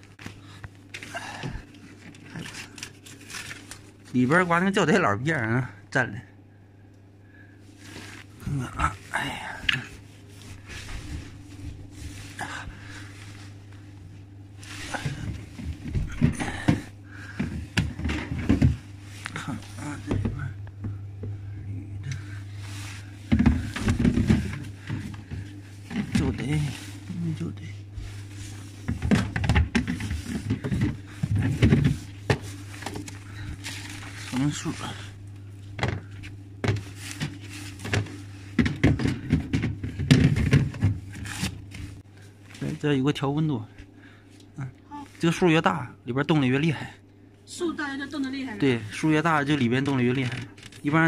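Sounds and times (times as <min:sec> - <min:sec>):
fridge hum: 0:00.0 - 0:51.0
plastic clattering and rustling: 0:00.1 - 0:04.1, 0:14.6 - 0:20.5, 0:23.2 - 0:27.1, 0:28.2 - 0:34.9, 0:35.7 - 0:42.0, 0:49.8 - 0:51.0.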